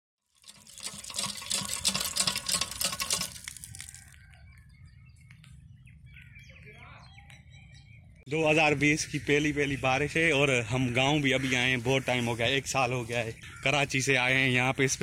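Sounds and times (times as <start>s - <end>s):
rainwater pouring onto brick paving: 0.3s - 4.2s.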